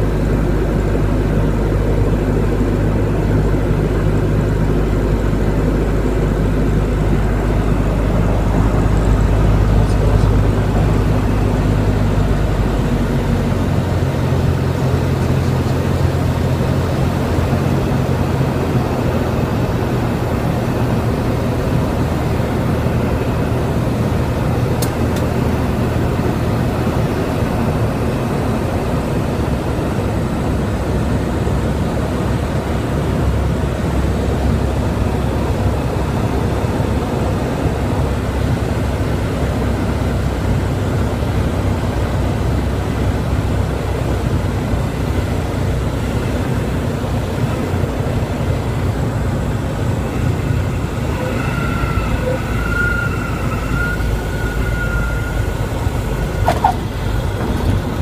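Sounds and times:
propeller plane engine: 0:00.0 - 0:58.0
high wavering warning horn: 0:49.1 - 0:57.4.

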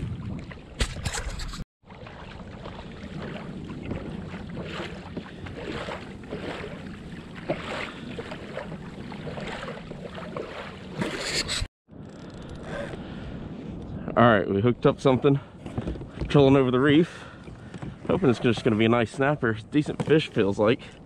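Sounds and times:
wind on microphone: 0:00.0 - 0:01.6
water splashing against hull: 0:00.0 - 0:11.7.

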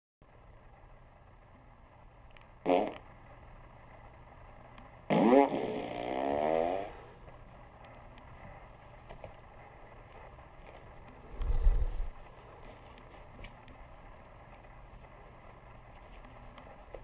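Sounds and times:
recorded fart sounds: 0:02.6 - 0:03.1, 0:05.1 - 0:07.0.

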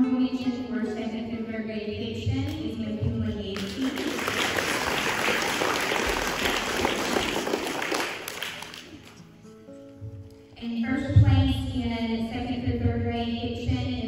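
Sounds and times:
audience clapping: 0:03.6 - 0:09.2.

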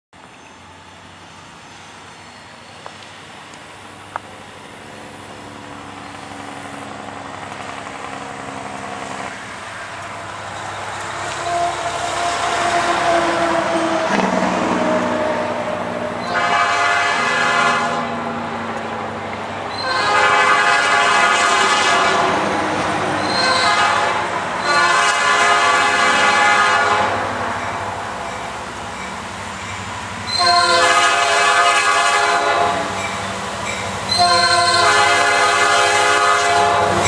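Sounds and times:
diesel locomotive engine drone: 0:00.2 - 0:37.0
train rail noise: 0:00.2 - 0:37.0
train horn blast: 0:11.1 - 0:15.4, 0:16.2 - 0:18.2, 0:19.7 - 0:22.5, 0:23.2 - 0:27.3, 0:30.3 - 0:33.0, 0:34.1 - 0:37.0.

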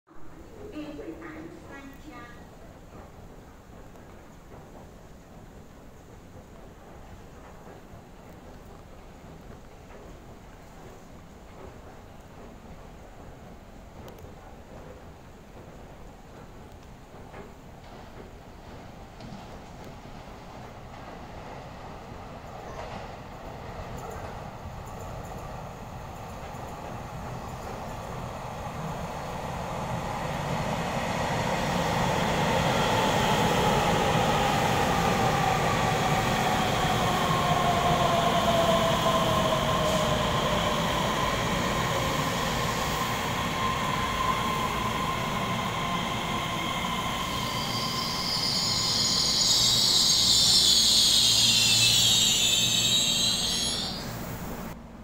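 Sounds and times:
electric train rumble: 0:00.2 - 0:55.0
train whine falling in pitch: 0:36.0 - 0:54.8
high brake squeal: 0:46.1 - 0:54.8.

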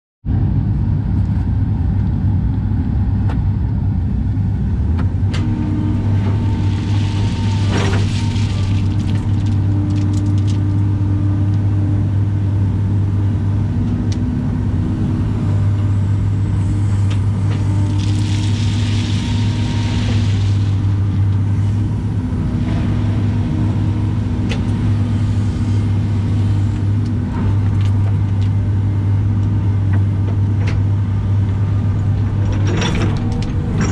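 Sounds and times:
excavator diesel engine running: 0:00.3 - 0:33.9
hydraulic whine: 0:05.3 - 0:10.9, 0:15.5 - 0:28.1
gravel clicks: 0:06.0 - 0:11.6, 0:16.8 - 0:21.4
rushing hiss: 0:18.2 - 0:20.9.

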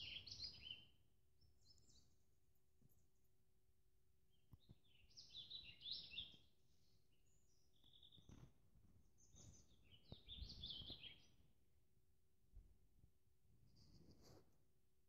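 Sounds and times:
songbird chirping: 0:00.0 - 0:03.4, 0:04.2 - 0:11.6.

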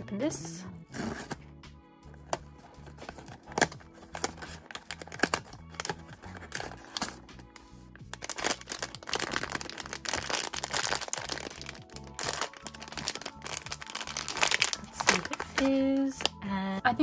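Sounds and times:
soft background music: 0:00.0 - 0:17.0
plastic bag crinkling: 0:04.0 - 0:07.2, 0:08.0 - 0:16.4.

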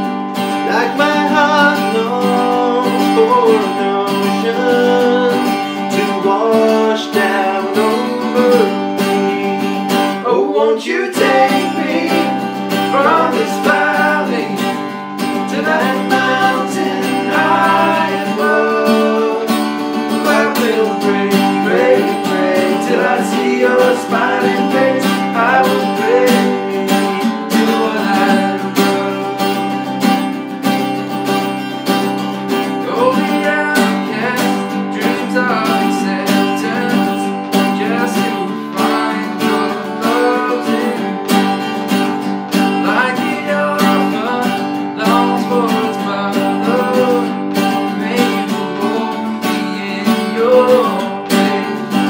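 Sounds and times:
man singing: 0:00.0 - 0:29.8, 0:32.6 - 0:41.7, 0:42.7 - 0:52.0
acoustic guitars strumming: 0:00.0 - 0:52.0.

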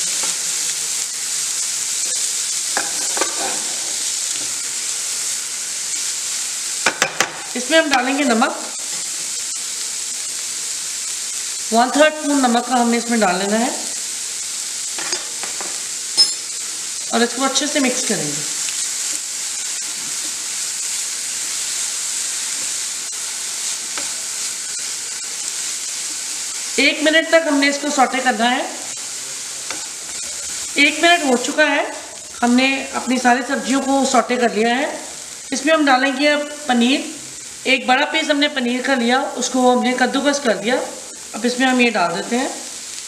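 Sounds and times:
vegetables sizzling in hot oil: 0:00.0 - 0:43.0
spatula scraping pan: 0:02.7 - 0:04.5.

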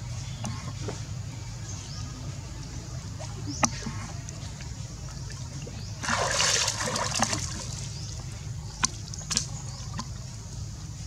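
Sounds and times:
water splashing: 0:03.1 - 0:10.4.

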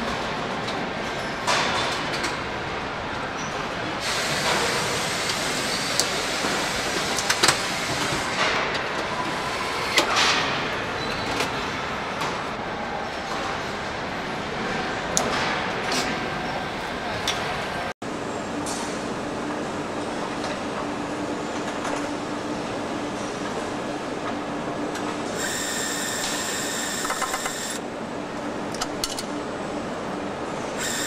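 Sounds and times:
machining line mechanical din: 0:24.3 - 0:27.8, 0:30.6 - 0:31.0.

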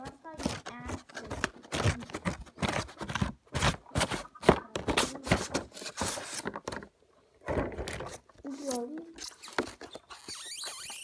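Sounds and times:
cardboard and plastic packaging rustling: 0:00.0 - 0:11.0.

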